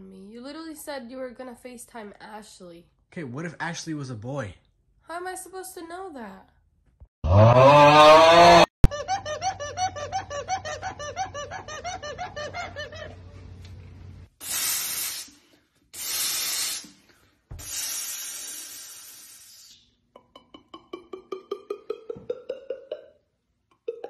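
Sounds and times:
high-pitched cartoon laughter: 0:08.8 - 0:13.2
aerosol spray can hissing: 0:14.4 - 0:15.4, 0:16.0 - 0:17.0, 0:17.6 - 0:19.8.

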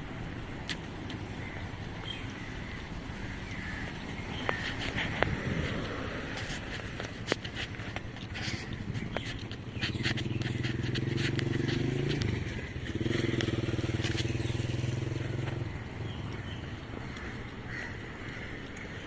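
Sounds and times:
vehicle engine running: 0:08.3 - 0:17.4.

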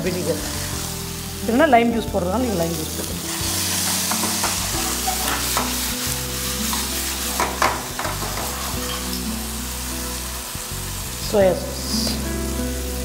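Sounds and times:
sauce sizzling in oil: 0:00.0 - 0:13.0
ladle scraping and tapping pan: 0:03.7 - 0:05.8.

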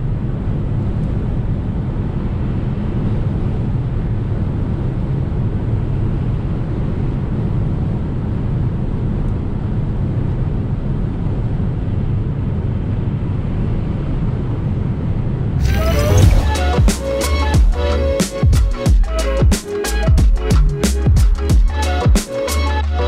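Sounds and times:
tyre rumble: 0:15.6 - 0:17.0.

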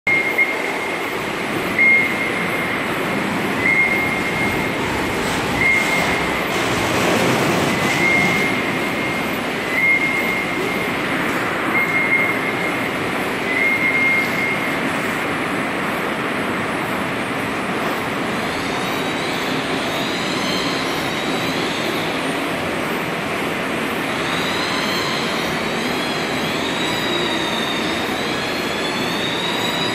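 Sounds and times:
processing machinery running: 0:00.1 - 0:20.2
high squealing tones: 0:01.7 - 0:14.8.

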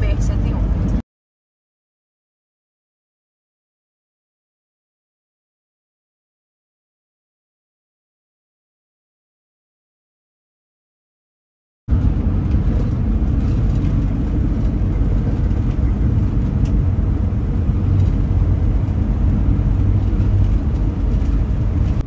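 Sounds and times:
road and engine rumble: 0:00.0 - 0:01.0, 0:11.9 - 0:22.0.

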